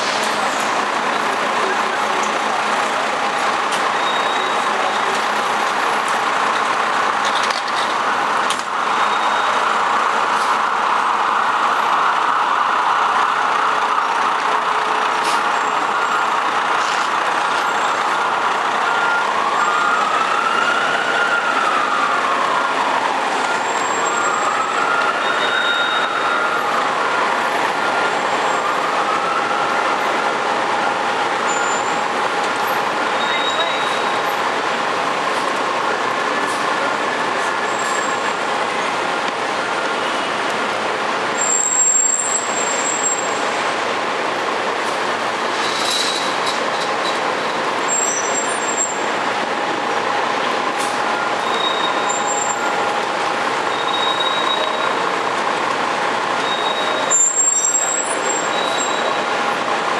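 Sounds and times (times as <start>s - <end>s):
city traffic noise: 0.0s - 59.9s
fire engine running: 0.0s - 59.9s
siren wailing: 17.3s - 34.4s.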